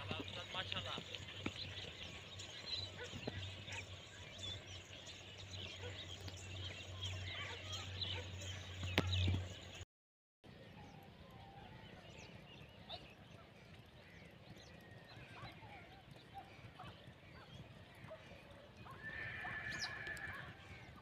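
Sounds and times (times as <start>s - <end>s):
bird chirps: 0.0s - 9.8s
open field ambience: 0.0s - 9.8s, 10.4s - 21.0s
horse whinny: 18.9s - 20.6s.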